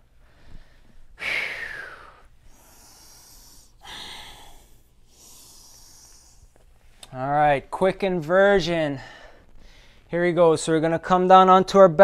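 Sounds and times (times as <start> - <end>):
man breathing deeply: 0.0 - 6.6, 8.9 - 10.1.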